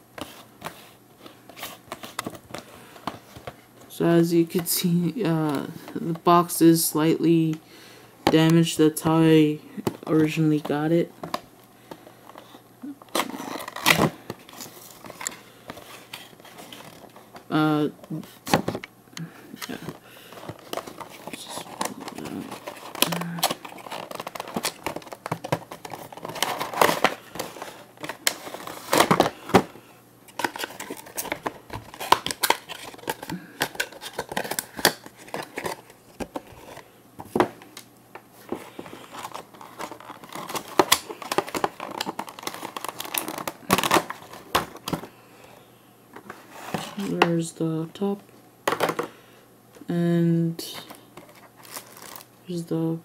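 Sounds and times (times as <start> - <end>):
packaging crinkling and rustling: 9.8 - 17.6, 19.6 - 45.2, 50.7 - 52.3.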